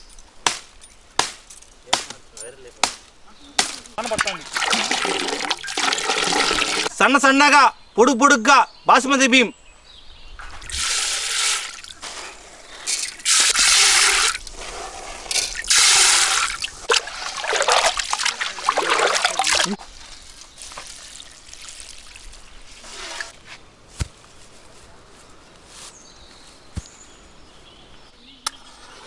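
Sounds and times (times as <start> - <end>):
rice poured into water: 4.4 - 6.9, 15.4 - 19.7
hands swishing rice in water: 12.9 - 22.2.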